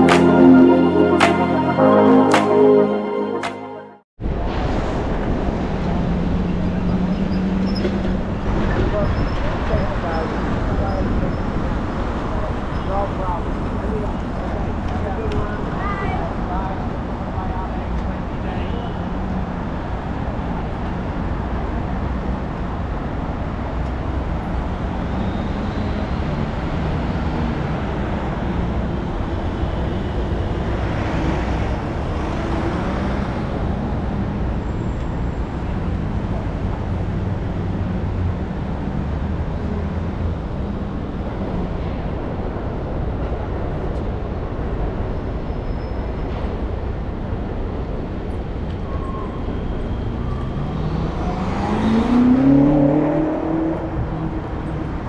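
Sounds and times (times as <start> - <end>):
traffic rumble: 4.2 - 55.0
vehicle passing by: 50.2 - 54.9.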